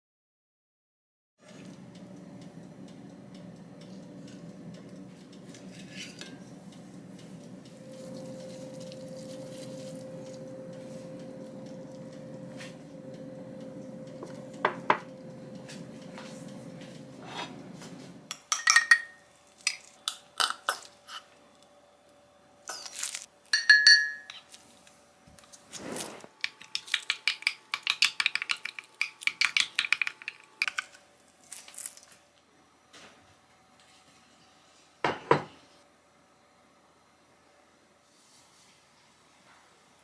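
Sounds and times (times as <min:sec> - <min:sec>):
low steady hum: 0:01.5 - 0:27.0
plates and utensils clinking: 0:17.2 - 0:20.9, 0:23.5 - 0:24.5
glass clinking: 0:18.3 - 0:19.2, 0:23.5 - 0:24.4.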